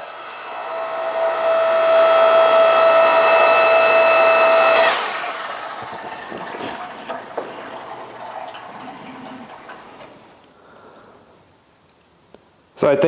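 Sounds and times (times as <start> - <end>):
log splitter motor whine: 0.0 - 10.3.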